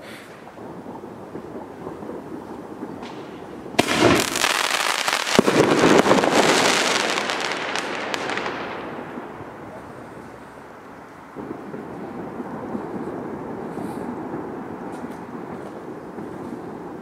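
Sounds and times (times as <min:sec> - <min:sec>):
firework crackling: 0:00.0 - 0:17.0
firework rush: 0:00.0 - 0:17.0
firework bang: 0:00.2 - 0:10.7.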